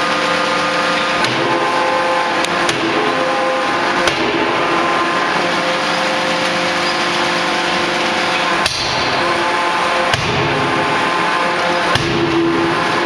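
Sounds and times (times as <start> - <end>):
loud machine hum: 0.0 - 13.0
forging hammer striking steel: 8.4 - 11.2, 11.8 - 13.0.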